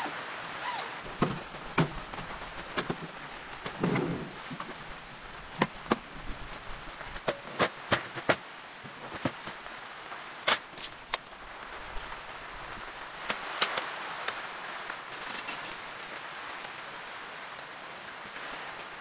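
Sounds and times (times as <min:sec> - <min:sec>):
steady rain hiss: 0:00.0 - 0:19.0
folding metal chairs clacking: 0:01.1 - 0:04.8.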